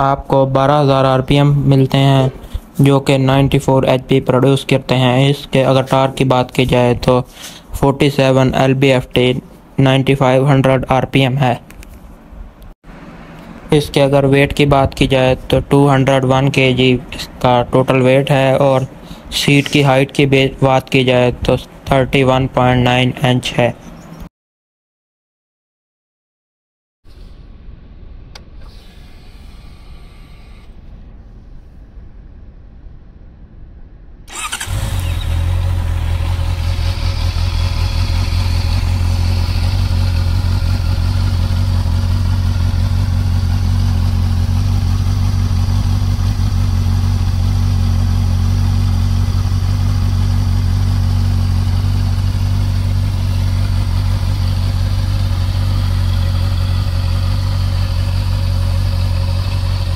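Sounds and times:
motorcycle engine starting and idling: 34.3 - 59.9.

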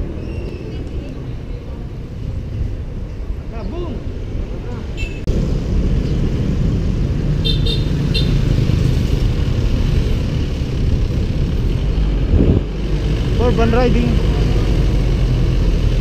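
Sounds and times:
road noise: 0.0 - 16.0
wind buffeting microphone: 8.2 - 16.0.

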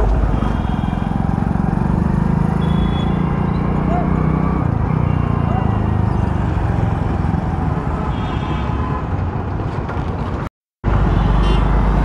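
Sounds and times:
road and wind noise: 0.0 - 12.0
traffic: 0.0 - 12.0
motorcycle engine running: 0.6 - 4.3.

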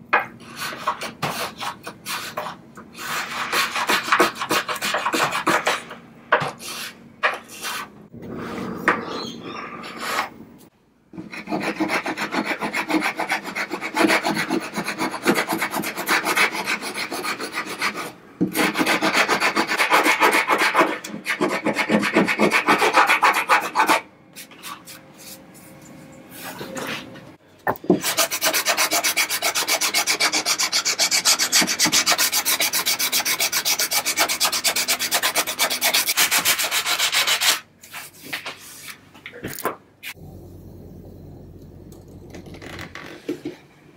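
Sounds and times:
filing and sanding wood: 0.4 - 7.9, 11.2 - 25.5, 27.9 - 39.0.

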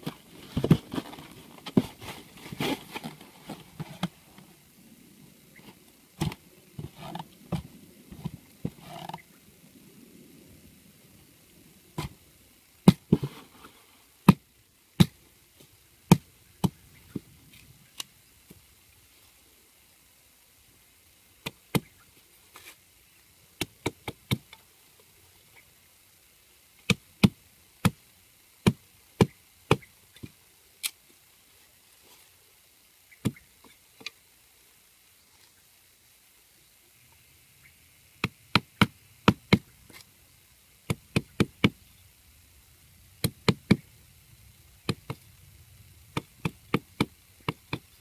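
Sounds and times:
hatchet chopping wood: 12.8 - 13.3, 15.0 - 15.2, 16.1 - 16.8, 21.4 - 21.9, 23.6 - 24.5, 26.9 - 28.0, 28.6 - 29.9, 38.2 - 39.7, 40.9 - 41.8, 43.2 - 43.8, 44.8 - 45.2, 46.1 - 47.9.

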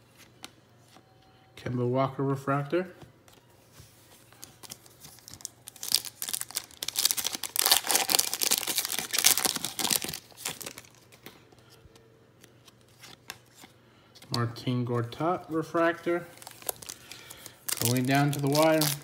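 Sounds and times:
foil wrapper crinkling and tearing: 4.4 - 11.0, 16.3 - 19.0.

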